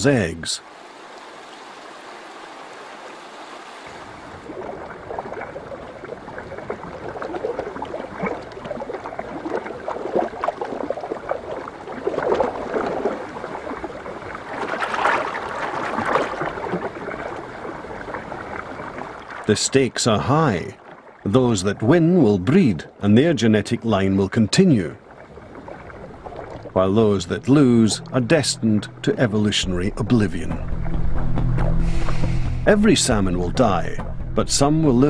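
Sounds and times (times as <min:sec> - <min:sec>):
shallow river water running: 0:00.0 - 0:35.0
fish splashing in water: 0:01.4 - 0:19.5.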